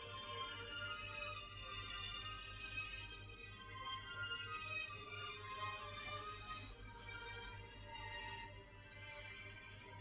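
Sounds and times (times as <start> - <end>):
faint music from radio: 0.0 - 10.0.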